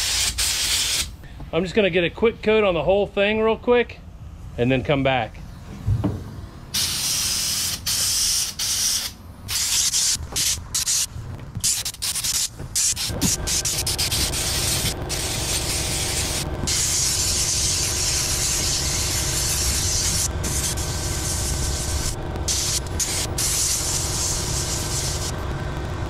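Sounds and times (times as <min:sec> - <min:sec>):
paint spray gun hissing: 0:00.0 - 0:01.1, 0:06.7 - 0:25.4
steady motor hum: 0:05.4 - 0:07.8, 0:09.2 - 0:26.0.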